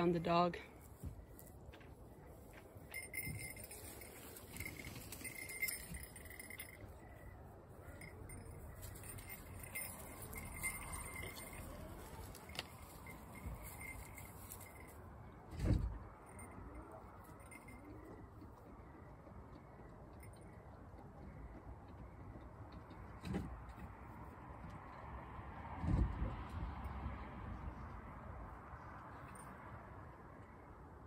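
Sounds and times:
metallic jingling and clinking: 2.2s - 19.0s.

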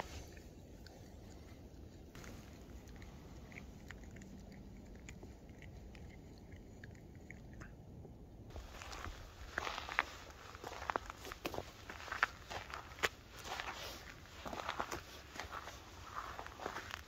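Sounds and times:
cat licking its paw: 0.0s - 16.8s
footsteps in thin snow: 8.5s - 17.0s.

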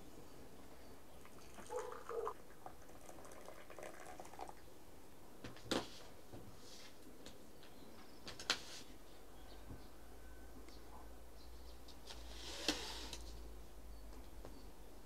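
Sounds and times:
tea trickling into glasses: 1.2s - 4.7s.

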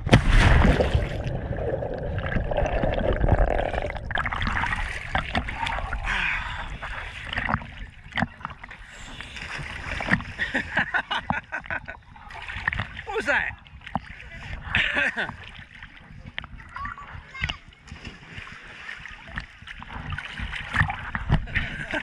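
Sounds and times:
person splashing into water: 0.0s - 7.7s
water sloshing and gurgling: 0.0s - 22.0s.

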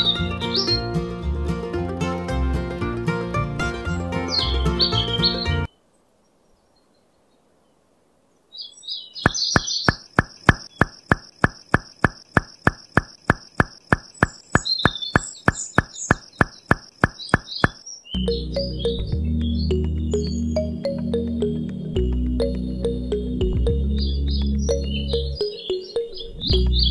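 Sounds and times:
birds chirping: 0.0s - 1.3s, 3.6s - 26.9s
repeated short knocks: 9.2s - 17.8s.

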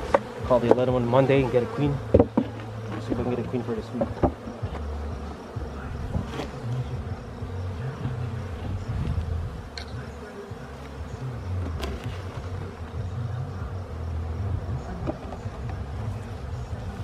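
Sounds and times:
honeybees buzzing: 0.0s - 17.0s.

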